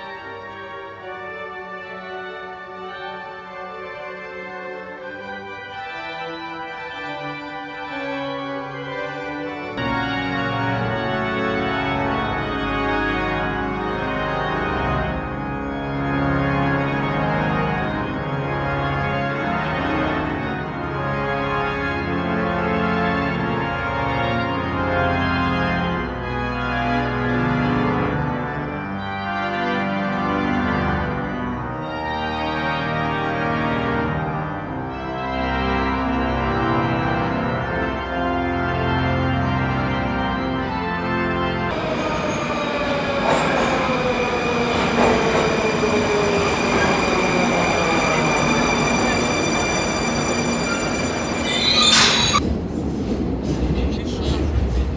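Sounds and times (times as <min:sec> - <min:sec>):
pipe organ chords: 0:00.0 - 0:52.4.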